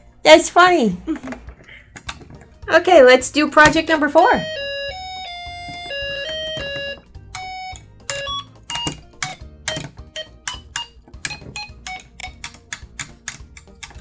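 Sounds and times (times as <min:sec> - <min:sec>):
electronic tune from small speaker: 0:04.3 - 0:09.0
irregular clicks: 0:07.3 - 0:14.0.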